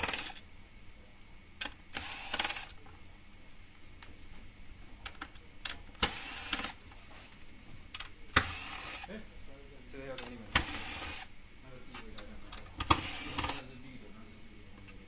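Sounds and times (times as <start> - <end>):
electric screwdriver whirring: 0.0 - 0.4, 1.9 - 2.7, 6.0 - 6.8, 8.4 - 9.1, 10.6 - 11.3, 12.9 - 13.6.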